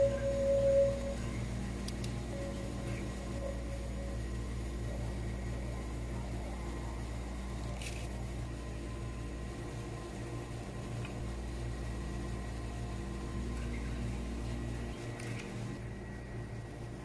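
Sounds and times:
faint high steady tones: 0.0s - 7.4s
steady low hum: 0.0s - 17.0s.

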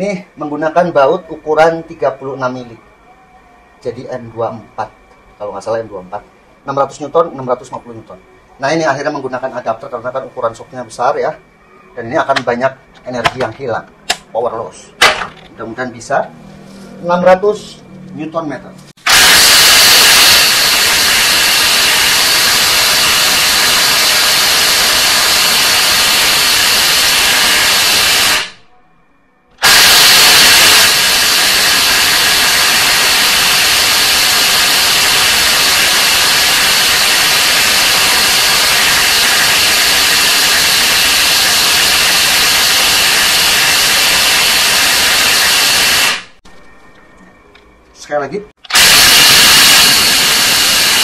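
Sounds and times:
impact wrench hammering: 15.0s - 15.5s.

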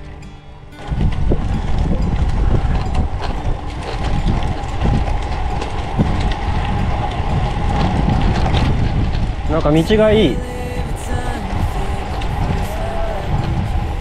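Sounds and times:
wind and road rumble: 0.0s - 14.0s.

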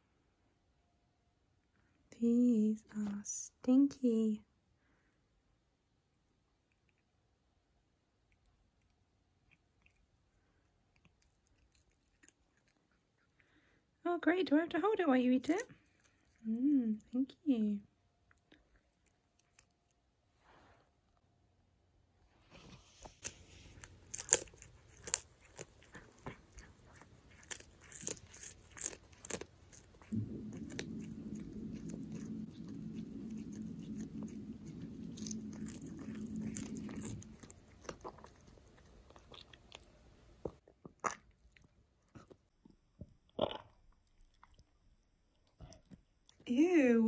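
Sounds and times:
cat crunching dried fish: 6.4s - 14.0s, 15.3s - 17.1s, 18.2s - 20.2s, 23.0s - 42.4s
low hum: 23.2s - 40.5s.

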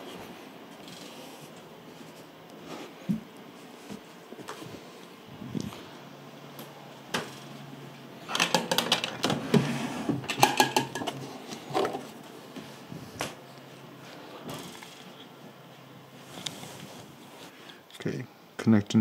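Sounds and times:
rapid clicks and rattles: 8.3s - 9.4s.

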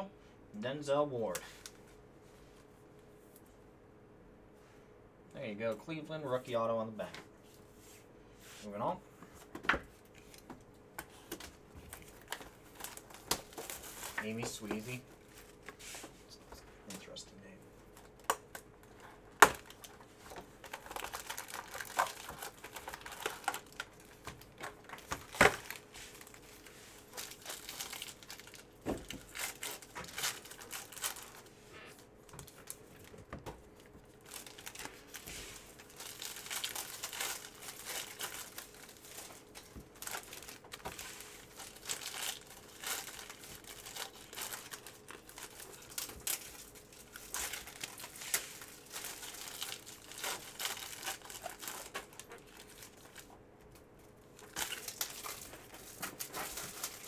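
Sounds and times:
foil wrapper crinkling and tearing: 11.1s - 15.6s, 17.9s - 31.5s, 33.7s - 53.4s, 54.3s - 57.0s.

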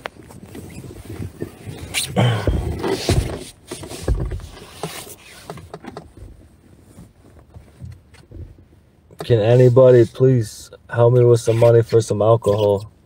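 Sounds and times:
fabric rustling on microphone: 0.0s - 10.5s
dull thumps: 2.2s - 4.6s.

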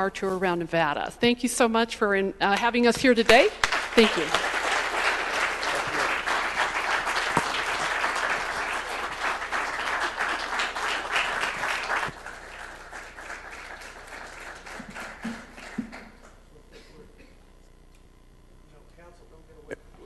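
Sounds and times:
audience applauding: 3.3s - 16.4s.

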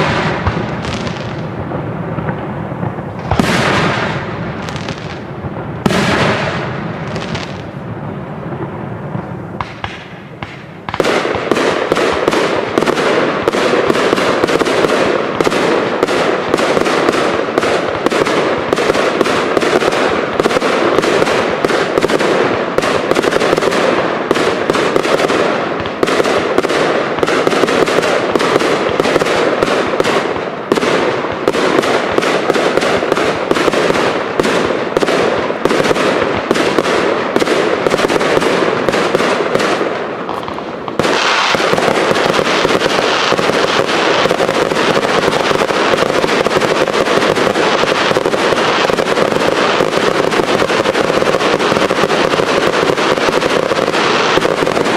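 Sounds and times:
fireworks crackling: 0.0s - 54.9s
firework fountain rushing sparks: 40.9s - 54.9s.

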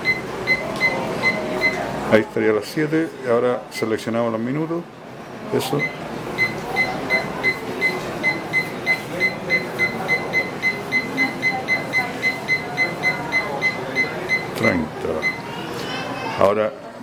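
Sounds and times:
alarm clock beeping: 0.0s - 1.8s, 5.8s - 15.4s.

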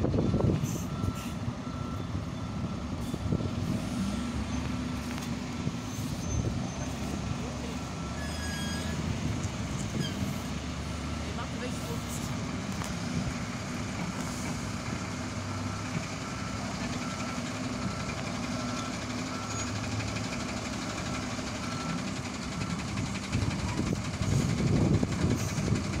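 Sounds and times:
diesel engine running low: 0.0s - 26.0s
reversing alarm beeping: 0.2s - 5.0s, 5.9s - 9.1s, 14.9s - 24.5s.

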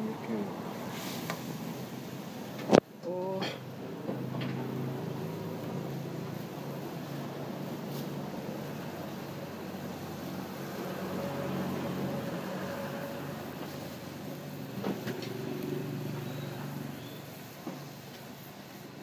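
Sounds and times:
street noise: 0.0s - 19.0s
vehicle engine running: 3.8s - 17.4s.

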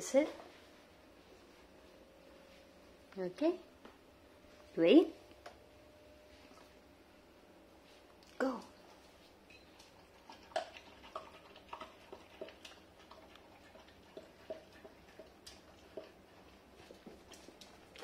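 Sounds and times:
dog eating from metal bowl: 9.4s - 18.0s.

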